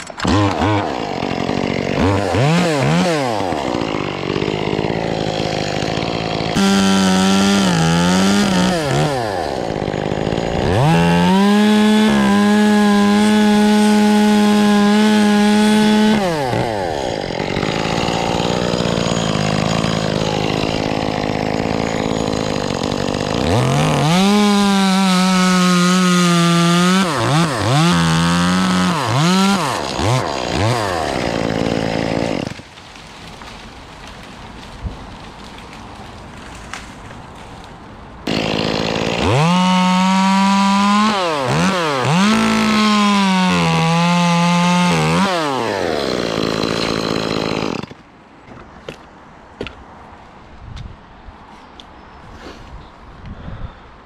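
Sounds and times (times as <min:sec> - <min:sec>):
chainsaw revving: 0:00.0 - 0:32.6, 0:38.2 - 0:47.9.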